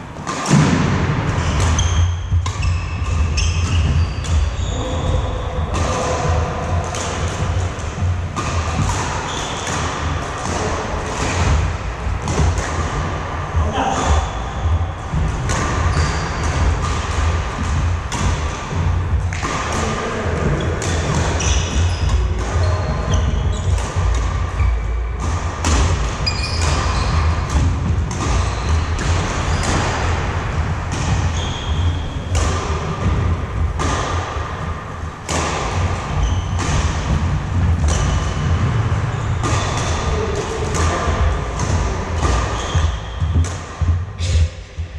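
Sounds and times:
rackets striking shuttlecock: 0.2 - 44.8
squeaking shoes: 1.4 - 11.6, 13.6 - 17.3, 20.2 - 30.1, 31.1 - 33.2, 36.0 - 37.1, 37.8 - 44.6.

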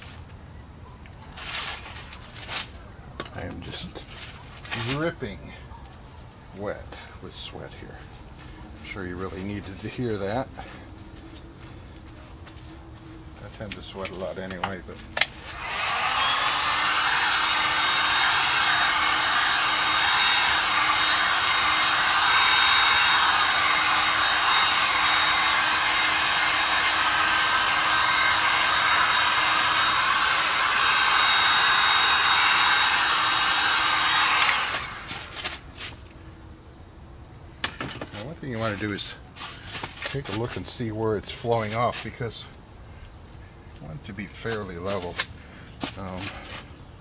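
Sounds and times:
hot-air blower running: 15.4 - 35.6.

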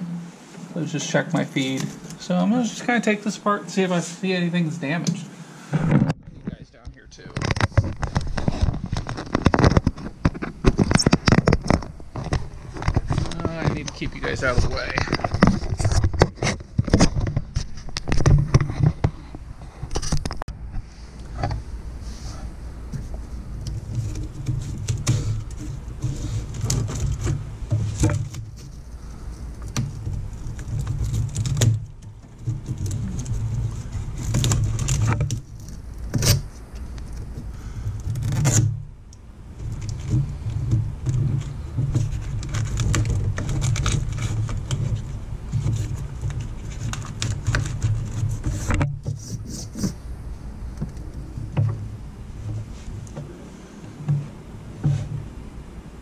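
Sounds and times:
brittle plastic crinkling and snapping: 7.2 - 19.0, 23.6 - 49.2.

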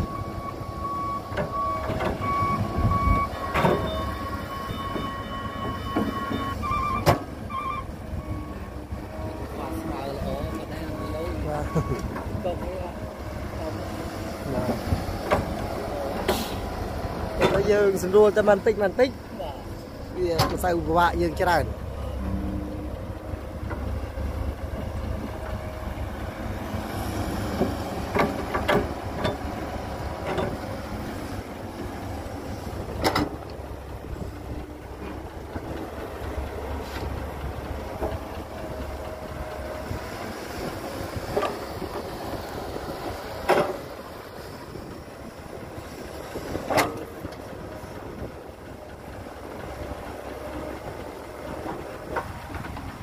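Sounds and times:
excavator diesel engine running: 0.0 - 53.0
excavator bucket clanking: 1.3 - 8.4, 11.6 - 18.0, 24.6 - 30.9, 31.6 - 53.0.

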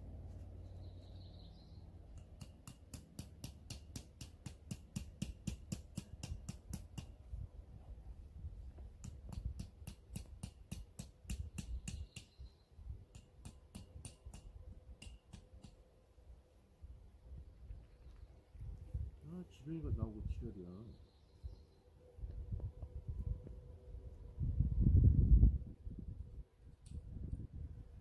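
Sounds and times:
metal tent stake being hammered: 2.1 - 7.2, 9.0 - 12.4, 13.1 - 15.8.

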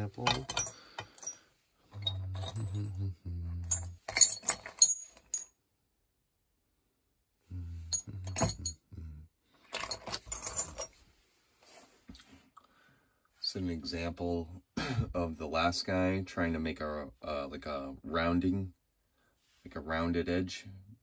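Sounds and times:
metal tools clinking: 0.0 - 3.0, 3.6 - 5.6, 7.9 - 8.8, 9.7 - 11.0
man humming: 2.0 - 3.9, 7.5 - 9.3.

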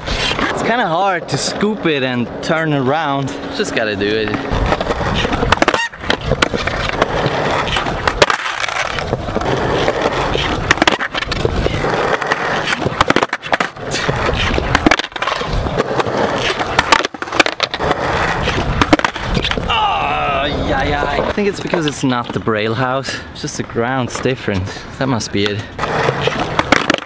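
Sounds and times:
skateboard wheels rolling on concrete: 0.0 - 27.0
skateboard slapping on ground: 4.2 - 19.7, 25.4 - 27.0
skateboard pops and clatters: 4.7 - 19.7, 25.4 - 27.0.

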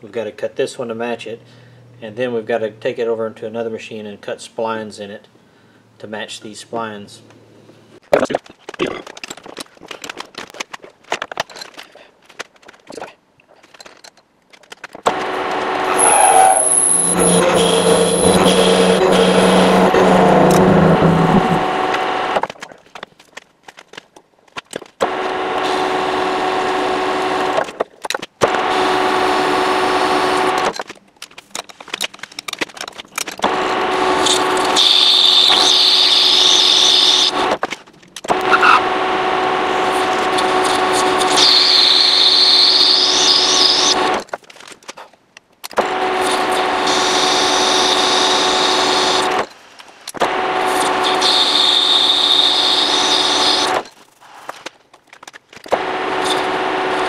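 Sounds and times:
high-pitched cutting whine: 15.3 - 22.4, 33.7 - 37.4, 39.5 - 44.0
metal lathe running: 15.8 - 22.4.

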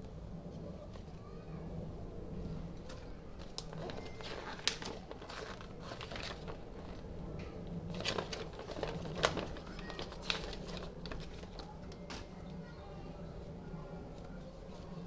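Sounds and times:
steady low hum: 0.0 - 15.0
paper rustling: 2.8 - 12.3
sharp paper snaps: 3.5 - 7.0.

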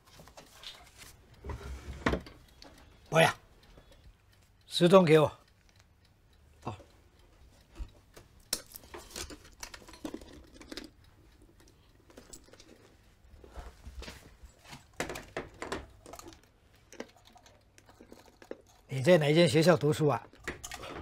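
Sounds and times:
small objects clicking and knocking: 8.5 - 13.0, 14.8 - 19.1.

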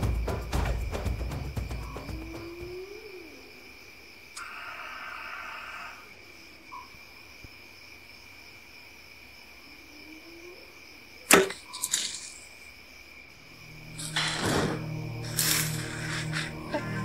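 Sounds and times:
night insects chirring: 0.0 - 17.0
bow release crack: 11.3 - 12.4, 14.0 - 16.5.

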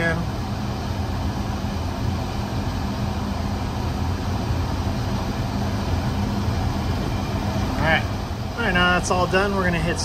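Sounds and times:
hvac machinery humming: 0.0 - 10.0.

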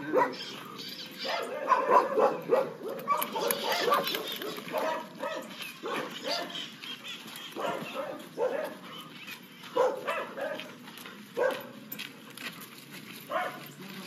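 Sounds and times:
dog barking: 0.0 - 0.5, 1.2 - 6.6, 7.5 - 9.0, 9.7 - 10.7, 11.4 - 11.8, 13.3 - 13.7.

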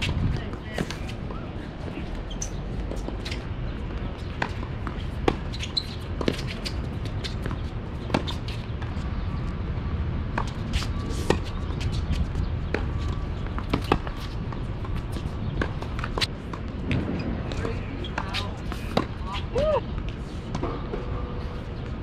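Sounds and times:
tennis balls struck by rackets: 12.7 - 17.1.

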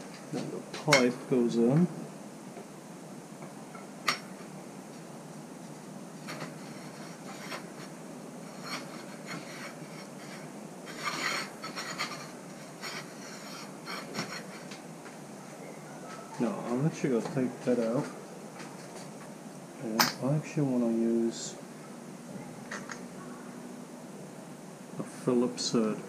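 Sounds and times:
metal pipe rubbing through a clamp: 6.2 - 14.7
metal scrape: 6.2 - 14.8.

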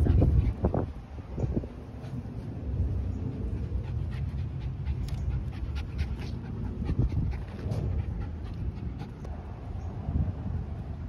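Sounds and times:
dog panting rapidly: 0.0 - 1.0, 3.2 - 9.4.

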